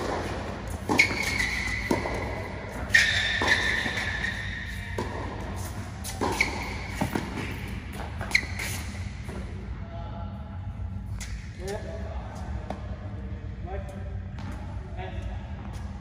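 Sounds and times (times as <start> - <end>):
tennis ball struck by rackets: 0.0 - 8.4
ball bouncing on hard court: 0.0 - 9.5.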